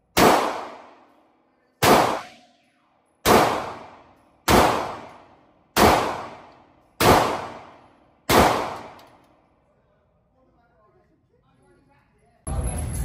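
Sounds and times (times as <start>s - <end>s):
gunshots with echo: 0.1s - 1.1s, 1.8s - 2.6s, 3.2s - 9.0s.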